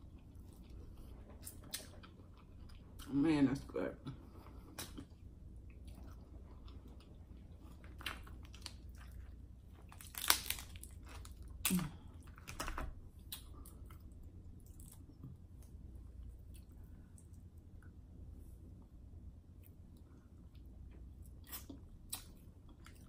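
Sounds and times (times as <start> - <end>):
chewing and mouth sounds: 0.0 - 3.1, 4.1 - 12.5, 13.2 - 18.0
shell cracks: 10.0 - 10.7
crab legs snapping: 10.0 - 10.8.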